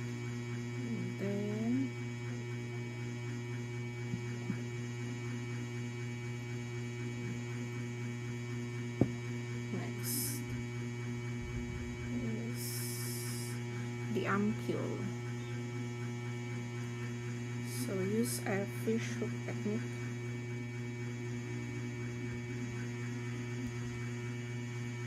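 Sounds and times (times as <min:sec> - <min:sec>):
electrical mains hum: 0:00.0 - 0:25.0.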